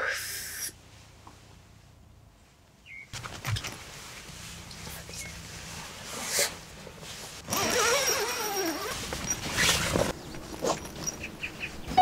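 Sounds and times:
tent zipper: 0:07.4 - 0:10.9.

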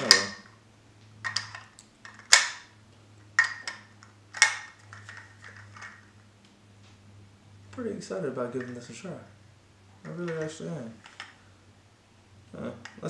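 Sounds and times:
metal stones clicking: 0:00.0 - 0:00.6, 0:01.2 - 0:02.7, 0:03.3 - 0:06.2.

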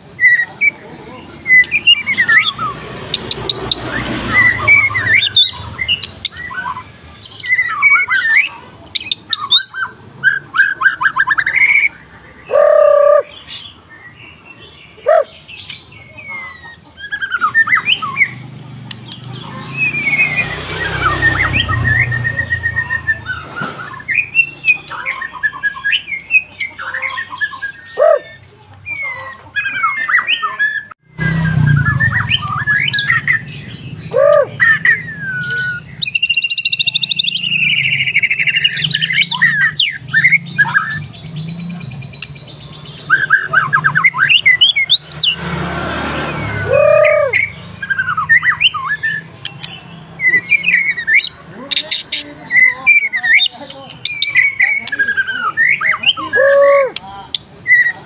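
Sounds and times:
bird singing whistled phrases: 0:19.8 - 0:26.6, 0:27.2 - 0:42.2, 0:46.2 - 0:51.4.

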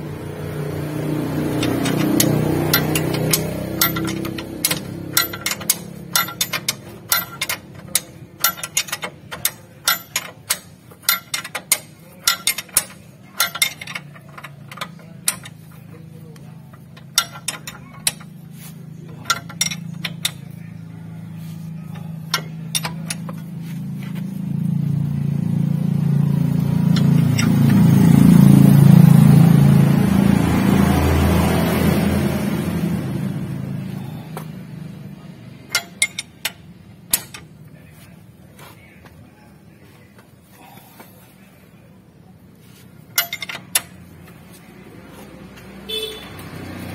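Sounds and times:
low engine hum: 0:00.0 - 0:46.9
metal wrench clicking: 0:01.6 - 0:18.4, 0:19.1 - 0:20.6, 0:22.1 - 0:23.5, 0:35.6 - 0:37.5, 0:43.1 - 0:44.0.

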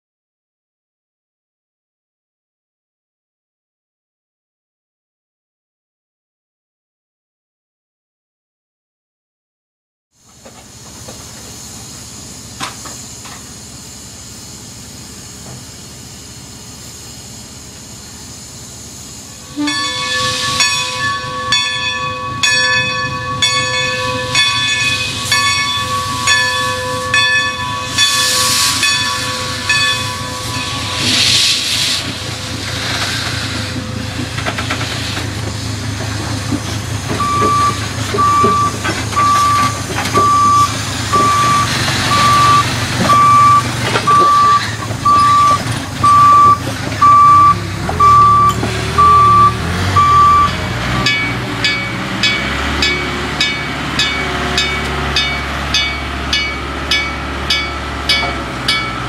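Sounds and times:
diesel engine running low: 0:10.1 - 0:59.0
steam locomotive hissing: 0:10.2 - 0:59.0
reversing alarm beeping: 0:19.5 - 0:31.2, 0:37.1 - 0:59.0.

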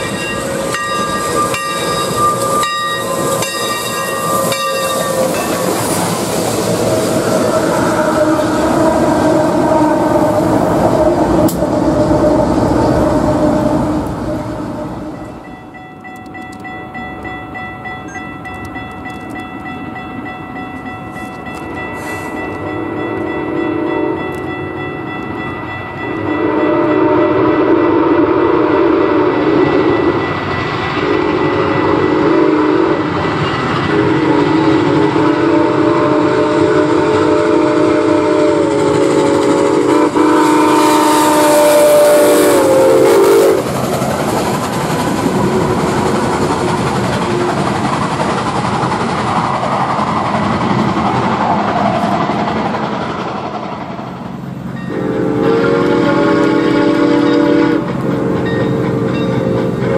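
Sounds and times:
loud rush of steam: 0:00.0 - 0:15.3, 0:21.8 - 0:24.2, 0:26.2 - 0:59.9
steam whistle blowing chords: 0:00.0 - 0:15.5, 0:22.0 - 0:24.4, 0:26.1 - 0:30.2, 0:31.0 - 0:43.7, 0:54.8 - 0:59.9
train rumbling and clattering by: 0:00.0 - 0:59.9.

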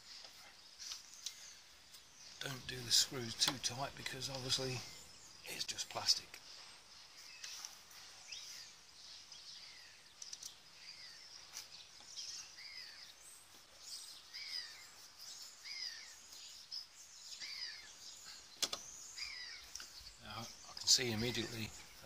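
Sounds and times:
birds chirping: 0:00.0 - 0:22.0
faint outdoor hiss: 0:00.0 - 0:22.0
faint clicks: 0:00.2 - 0:02.0, 0:10.2 - 0:10.6, 0:18.6 - 0:18.9.

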